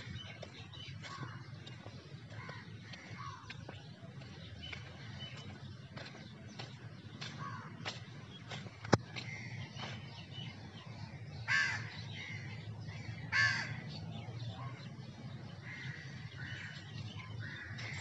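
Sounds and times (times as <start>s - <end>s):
crow cawing: 11.5s - 12.5s, 13.3s - 13.8s, 15.6s - 16.8s.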